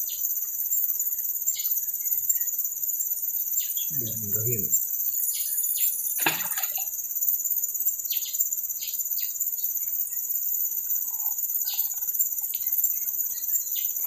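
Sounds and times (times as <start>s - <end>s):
insects droning: 0.0s - 14.0s
bird chirps: 8.0s - 14.0s.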